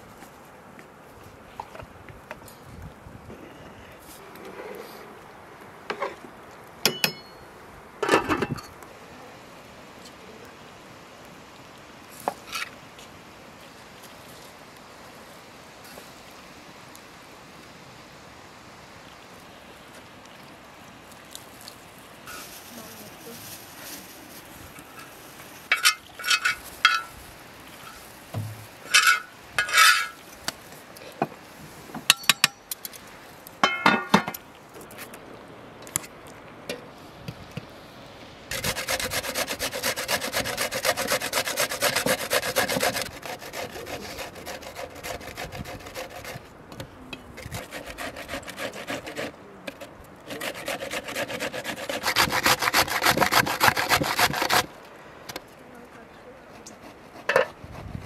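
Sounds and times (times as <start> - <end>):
cabbage grated on metal grater: 38.5 - 46.4, 47.4 - 49.3, 50.3 - 54.7.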